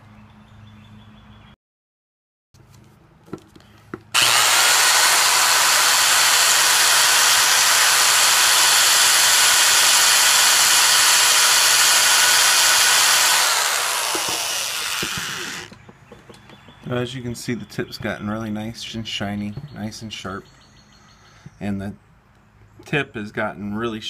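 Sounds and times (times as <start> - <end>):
electric drill motor whine: 4.2 - 15.8.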